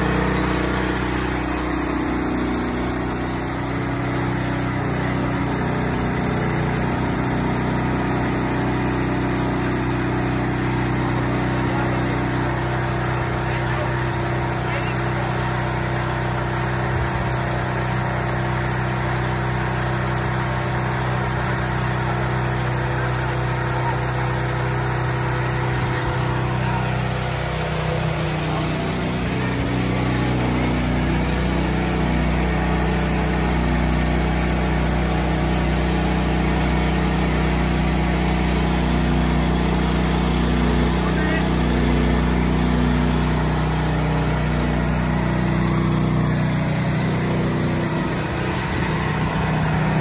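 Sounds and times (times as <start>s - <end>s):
band saw cutting log: 0.0s - 50.0s
small gasoline engine running: 0.0s - 50.0s.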